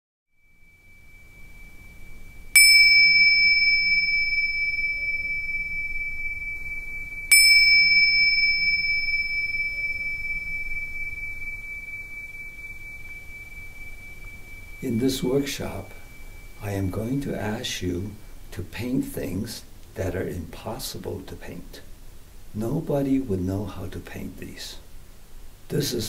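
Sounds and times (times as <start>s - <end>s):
small bell ringing: 0.4s - 18.3s.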